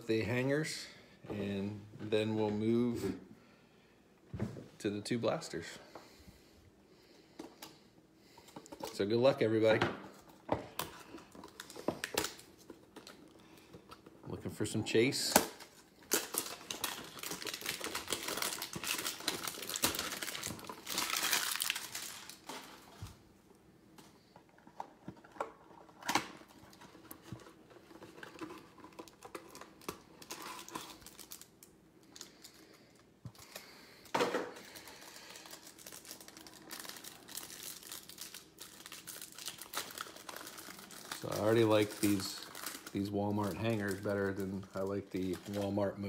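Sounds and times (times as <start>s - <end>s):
packaging crinkling: 10.7s - 14.1s, 15.5s - 23.2s, 24.7s - 46.0s
packaging ripping: 15.6s - 22.9s, 28.2s - 32.6s, 34.6s - 45.8s.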